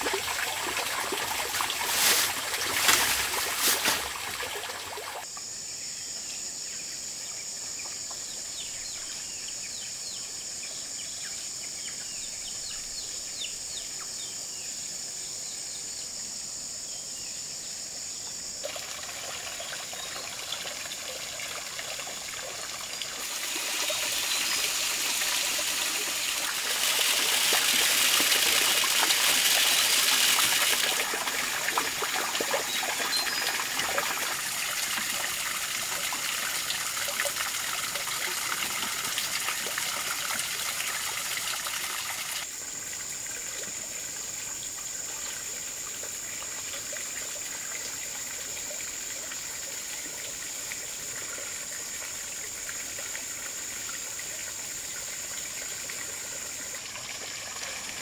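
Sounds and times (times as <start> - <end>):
water trickling: 0.0 - 5.2, 18.6 - 58.0.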